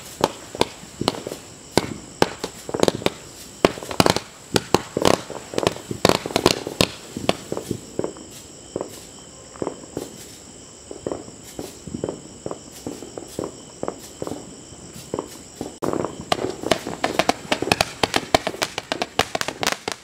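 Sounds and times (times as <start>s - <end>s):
crickets chirping: 0.0s - 20.0s
fireworks cracking: 0.0s - 20.0s.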